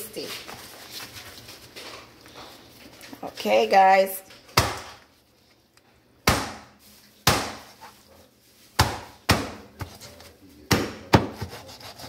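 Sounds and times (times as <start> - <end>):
meat cleaver chopping on board: 10.7 - 11.8.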